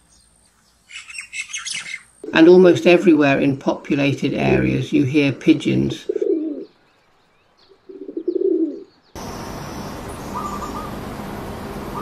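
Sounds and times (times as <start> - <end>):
steady outdoor hiss: 0.0 - 12.0
pigeon cooing: 5.9 - 6.7, 7.8 - 8.9
quick bird notes: 7.9 - 11.0.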